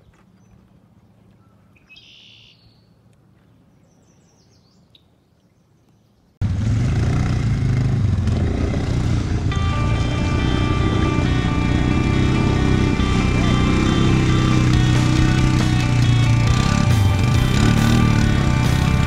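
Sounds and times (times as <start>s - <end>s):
faint bird chirps: 1.4s - 6.4s
atv engine driving through water: 6.5s - 19.0s.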